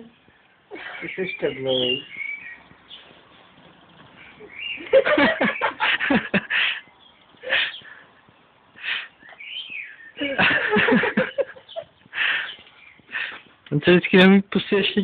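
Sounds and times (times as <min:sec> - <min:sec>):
kittens scuffling: 0:00.1 - 0:09.8.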